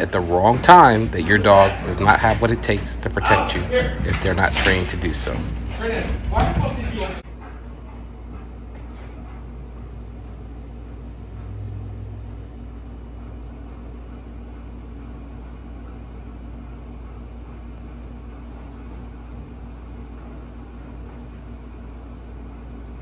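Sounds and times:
low room hum: 0.0s - 23.0s
brief low rumble: 11.0s - 13.4s.

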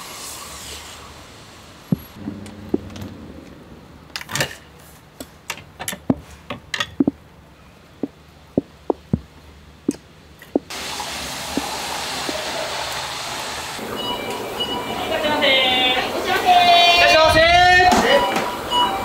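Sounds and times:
wooden knocks and clacks: 5.5s - 7.2s.

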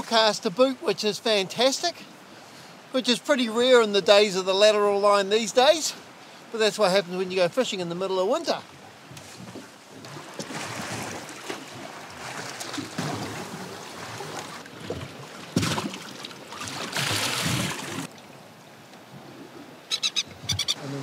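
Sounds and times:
water lapping against boat hull: 7.4s - 18.4s.

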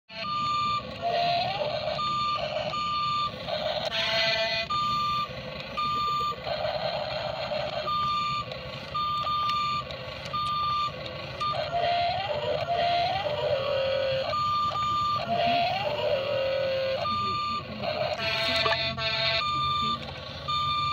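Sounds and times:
electronic warning beeps: 0.1s - 20.9s
buzzy horn-like tone: 18.1s - 19.5s.

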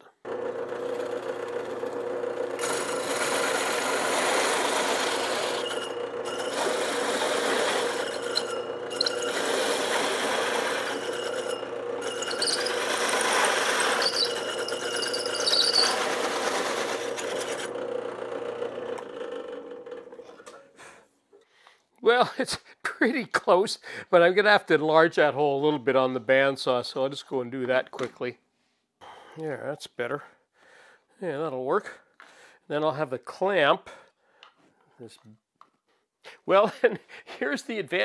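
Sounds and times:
drill press motor hum: 0.2s - 20.2s
hole saw rasping through plywood: 0.6s - 17.8s.

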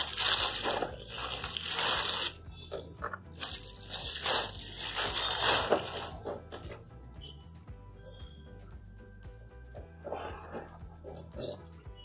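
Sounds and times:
plastic wrap crinkling: 0.0s - 2.4s, 3.3s - 6.3s.

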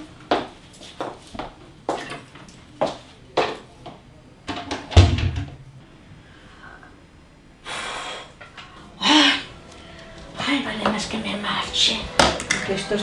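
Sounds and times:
door shutting thump: 4.9s - 5.6s.

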